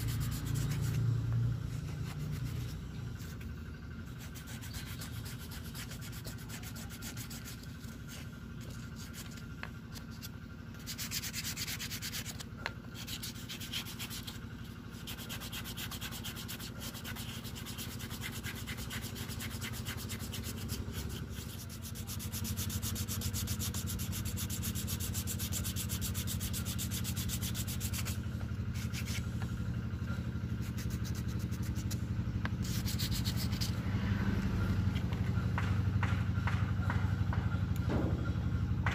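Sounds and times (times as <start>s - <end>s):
hand file rasping: 0.0s - 1.1s, 4.2s - 9.4s, 13.0s - 29.3s, 30.6s - 32.0s, 32.6s - 33.8s
low engine-like hum: 0.0s - 38.9s.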